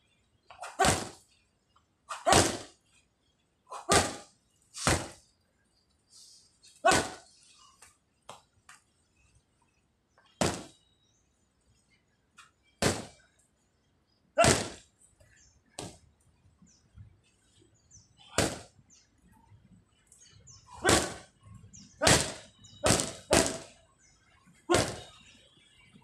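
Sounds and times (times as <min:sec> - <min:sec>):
boxing gloves punching: 0:00.6 - 0:01.2, 0:02.1 - 0:02.7, 0:03.8 - 0:05.2, 0:06.9 - 0:07.2, 0:10.4 - 0:10.7, 0:12.8 - 0:13.2, 0:14.4 - 0:14.8, 0:18.3 - 0:18.7, 0:20.8 - 0:21.3, 0:22.0 - 0:23.8, 0:24.7 - 0:25.1.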